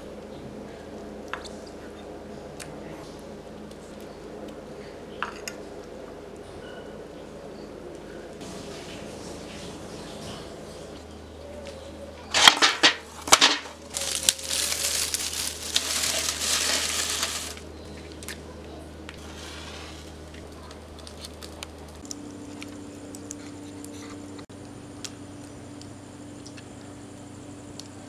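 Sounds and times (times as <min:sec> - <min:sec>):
dry husk crushing and rustling: 0:11.6 - 0:24.4.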